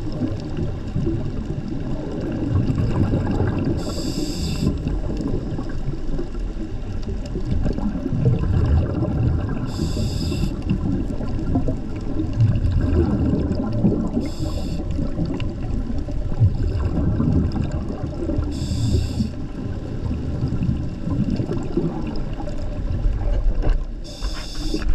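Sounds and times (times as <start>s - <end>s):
underwater water rumble: 0.0s - 24.9s
regulator breath hiss: 3.8s - 4.8s, 9.7s - 10.6s, 14.2s - 14.9s, 18.5s - 19.4s, 24.0s - 24.9s.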